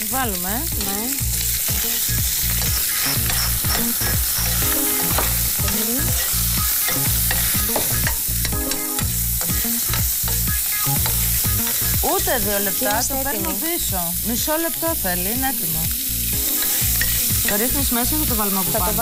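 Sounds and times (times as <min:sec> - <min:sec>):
shrimp sizzling in hot oil: 0:00.0 - 0:19.0
spoon scraping a pan: 0:01.4 - 0:13.6, 0:16.4 - 0:17.9.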